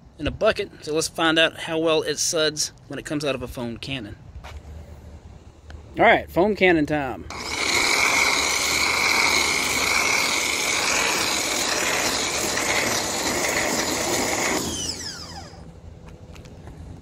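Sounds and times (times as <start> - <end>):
foam spray hissing: 7.3 - 15.6
pressure washer motor whine: 7.3 - 16.0.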